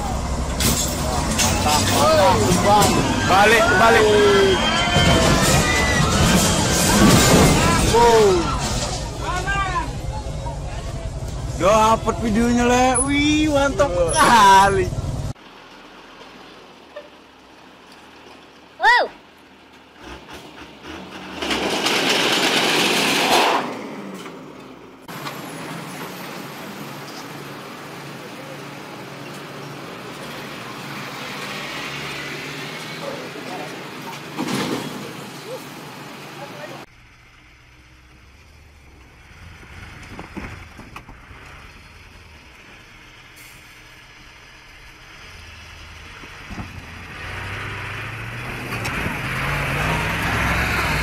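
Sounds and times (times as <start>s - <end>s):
truck diesel engine running: 0.0s - 17.8s, 35.8s - 51.0s
roadside traffic: 0.0s - 51.0s
poles sliding and scraping off truck: 0.5s - 9.5s, 19.7s - 27.4s.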